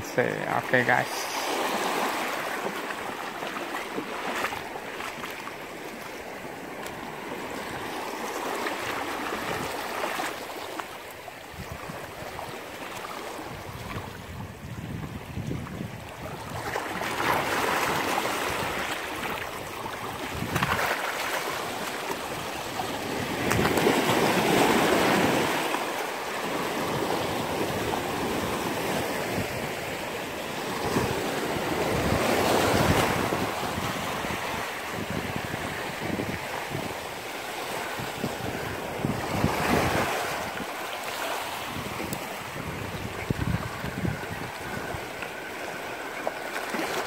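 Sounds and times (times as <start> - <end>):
sea waves breaking on rocks: 0.1 - 47.0
wind buffeting microphone: 13.4 - 18.8, 19.6 - 20.9, 30.7 - 37.0, 37.9 - 40.7, 41.6 - 45.2.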